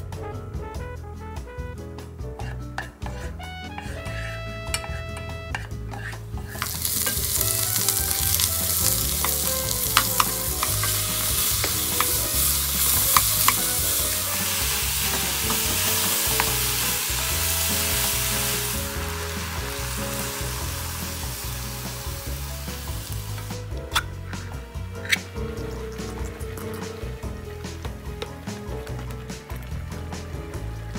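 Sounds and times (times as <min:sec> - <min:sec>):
food sizzling in oil: 0:03.2 - 0:30.6
wooden spatula clicking on pan: 0:05.9 - 0:13.7.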